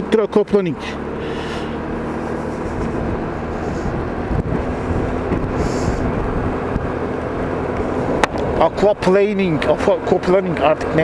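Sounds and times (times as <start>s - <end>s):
scooter engine running: 0.0s - 11.0s
tyres on wet road: 0.0s - 11.0s
wind noise: 2.2s - 7.0s.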